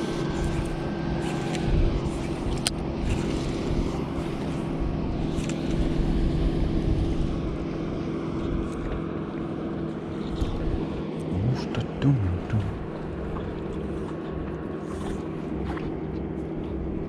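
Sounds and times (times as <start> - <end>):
wind rumbling on microphone: 0.0 - 11.3
boat motor humming: 0.0 - 17.0.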